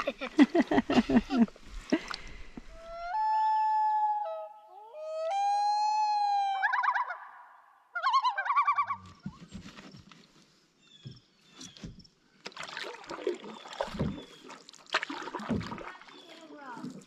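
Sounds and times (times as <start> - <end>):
loon tremolo call: 3.0 - 8.9
rustling: 9.0 - 12.1.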